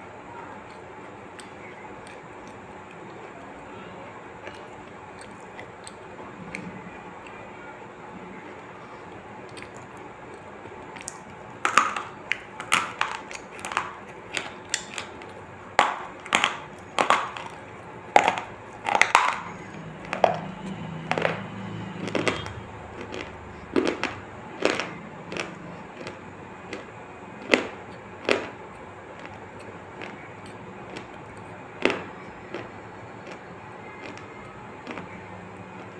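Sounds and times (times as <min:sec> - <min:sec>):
crunchy bites and chewing: 0:09.4 - 0:35.9.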